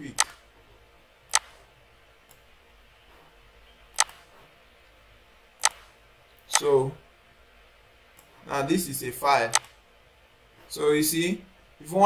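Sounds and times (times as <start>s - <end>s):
computer mouse button clicking: 5.6s - 5.9s.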